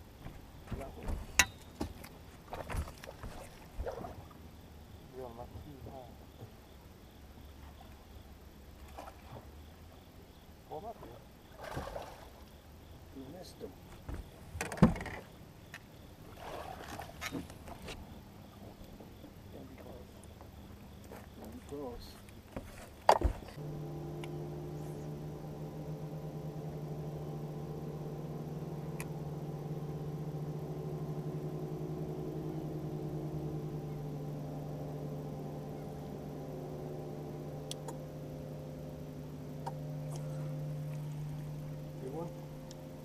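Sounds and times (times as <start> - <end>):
electric motor humming: 23.4 - 43.0.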